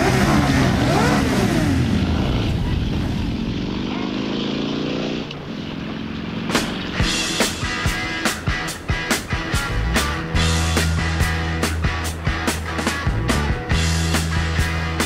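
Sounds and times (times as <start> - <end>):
motorcycle accelerating: 0.0 - 15.0
motorcycle engines revving: 0.0 - 15.0
rock music drum hits: 6.4 - 15.0.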